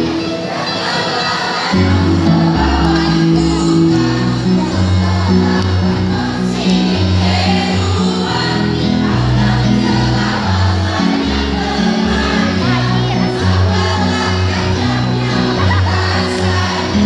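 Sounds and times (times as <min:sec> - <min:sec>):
mixed choir singing: 0:00.0 - 0:17.0
musical accompaniment: 0:00.0 - 0:17.0.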